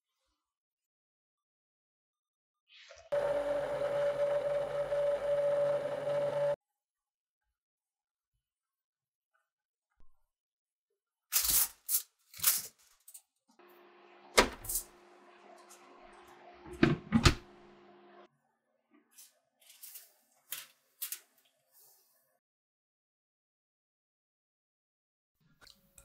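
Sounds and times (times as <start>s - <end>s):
steamer humming: 3.2s - 6.6s.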